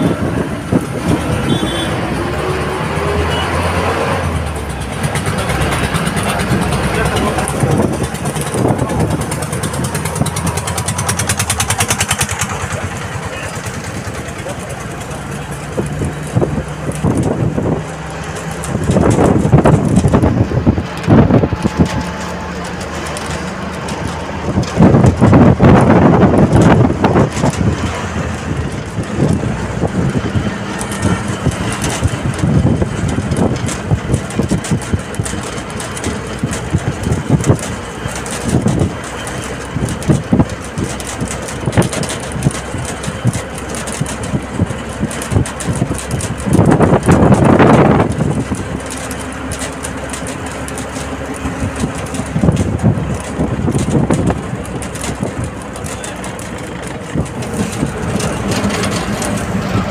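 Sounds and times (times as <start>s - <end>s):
wind on microphone: 0.0s - 3.2s, 15.3s - 22.3s, 23.9s - 59.9s
bus engine and road noise: 0.0s - 59.9s.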